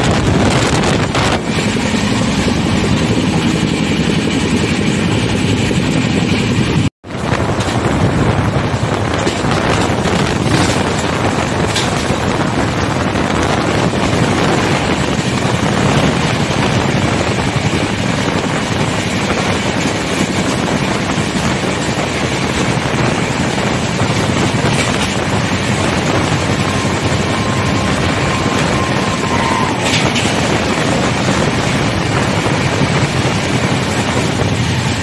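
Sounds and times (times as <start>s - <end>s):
rushing air: 0.0s - 35.0s
train wheels rumbling on rail: 0.0s - 35.0s.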